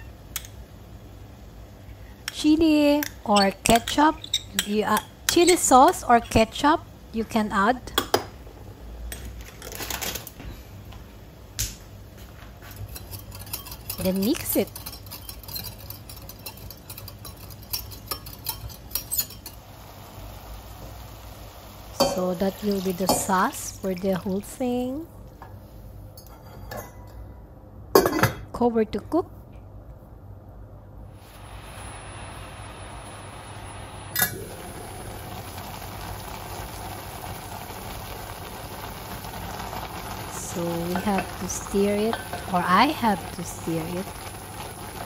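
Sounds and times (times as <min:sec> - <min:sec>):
pot simmering hiss: 0:00.0 - 0:11.0, 0:12.6 - 0:27.2, 0:31.0 - 0:45.0.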